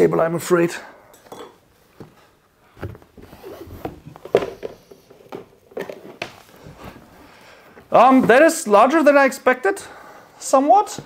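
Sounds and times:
cardboard knocks and rustles: 2.8s - 7.1s.

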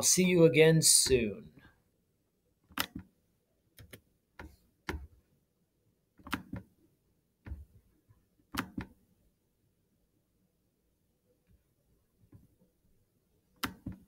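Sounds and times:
computer mouse clicking: 2.7s - 3.1s, 3.8s - 5.1s, 6.2s - 6.7s, 8.5s - 9.0s, 13.6s - 14.0s.

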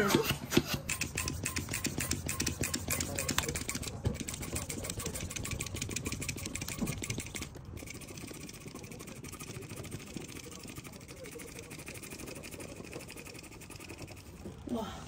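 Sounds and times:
electric balloon pump buzzing: 0.0s - 14.6s.

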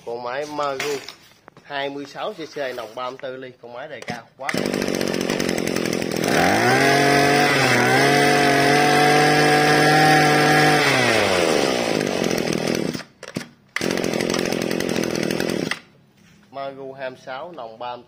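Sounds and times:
brush cutter engine revving: 4.4s - 13.1s, 13.8s - 15.9s.

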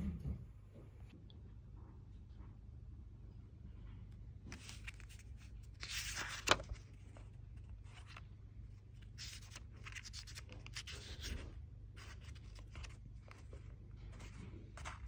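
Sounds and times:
paper rustling and scraping: 4.5s - 15.0s.

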